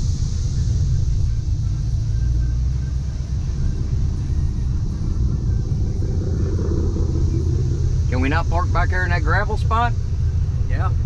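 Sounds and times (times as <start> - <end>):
car engine low rumble: 0.0 - 11.0.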